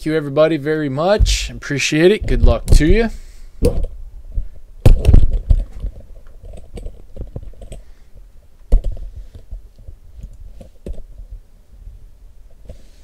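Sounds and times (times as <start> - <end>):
heavier knock: 1.2 - 1.5.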